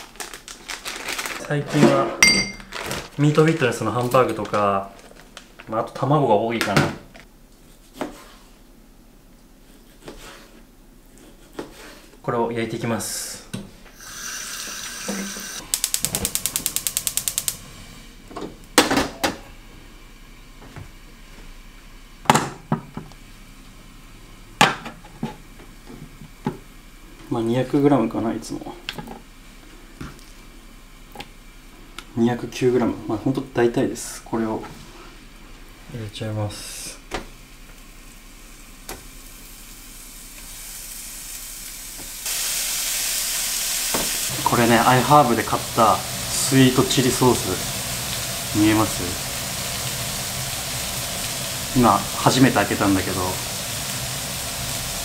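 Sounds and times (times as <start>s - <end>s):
chicken sizzling in frying pan: 14.0s - 17.6s, 37.8s - 55.0s
stove igniter clicking: 15.6s - 17.6s.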